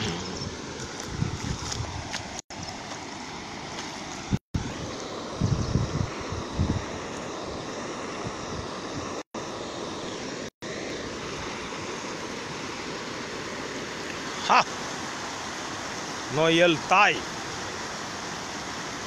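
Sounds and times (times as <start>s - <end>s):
river water rushing: 8.8s - 19.0s.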